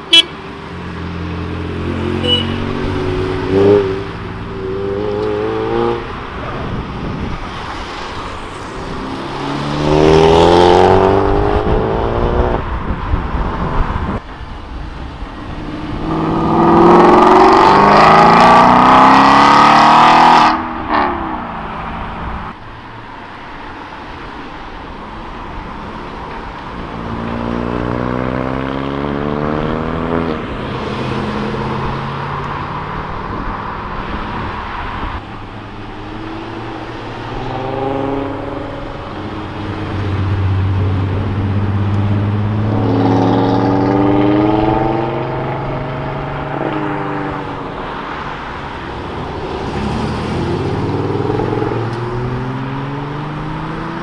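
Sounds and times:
cars accelerating: 0.0s - 14.2s, 15.0s - 22.6s, 26.6s - 54.0s
road and tyre noise: 0.0s - 54.0s.

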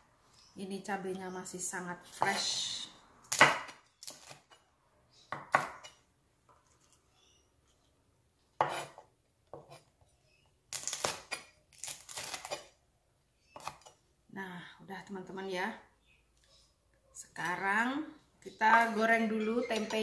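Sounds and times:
knife chopping on wooden board: 3.3s - 4.4s, 5.3s - 5.9s, 8.6s - 9.8s.

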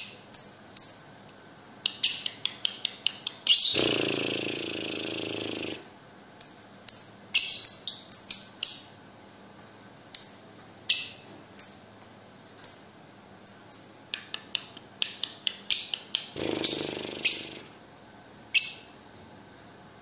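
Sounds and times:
lovebird chirping: 1.9s - 8.9s, 10.2s - 17.7s.

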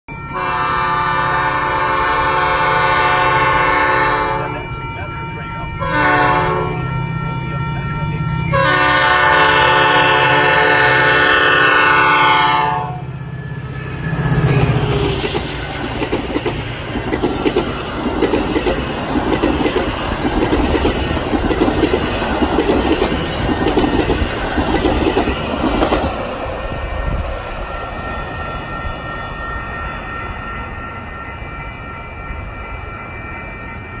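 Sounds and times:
train horn blasts: 0.2s - 15.2s
train wheels clattering over rail joints: 14.8s - 26.2s.

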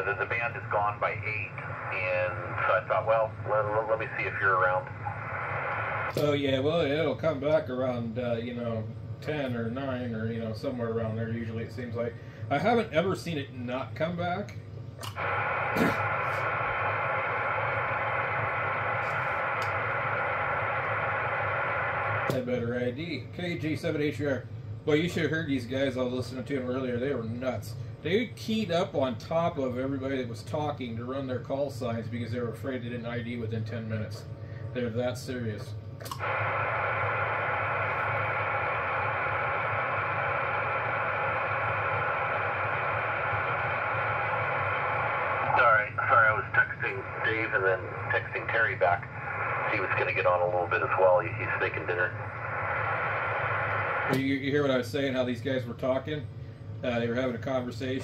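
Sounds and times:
low hum: 0.0s - 58.0s
radio static hiss: 0.0s - 58.0s.

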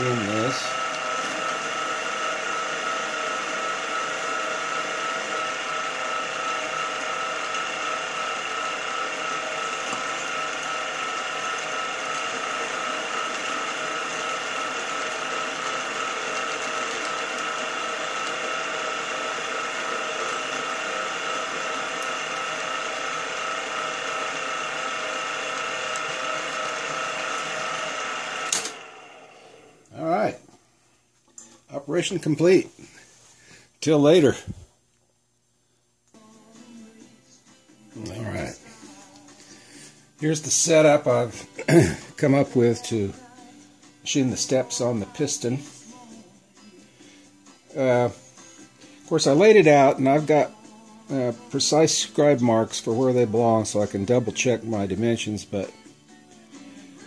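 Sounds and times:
milling machine hum: 0.0s - 30.0s
machine stopping click: 28.3s - 28.9s.

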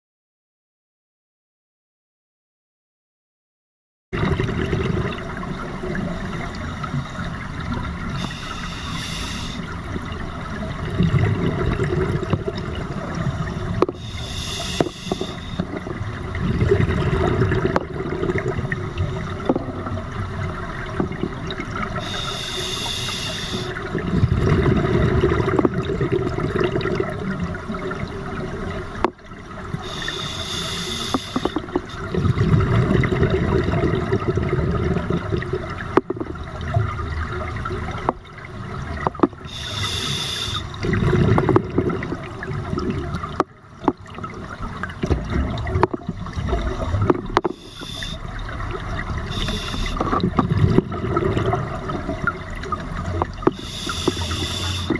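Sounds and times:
bubbling exhale underwater: 4.2s - 54.9s
hissing regulator inhale: 8.1s - 9.9s, 13.9s - 15.9s, 21.9s - 23.8s, 29.8s - 32.0s, 39.4s - 40.8s, 47.4s - 48.4s, 49.2s - 50.2s, 53.4s - 54.9s.

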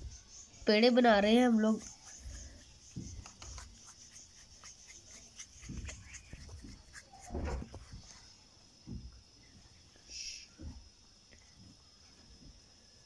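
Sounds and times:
hands kneading dough in flour: 1.3s - 8.4s
soft thumps: 2.8s - 3.8s, 5.5s - 9.7s.

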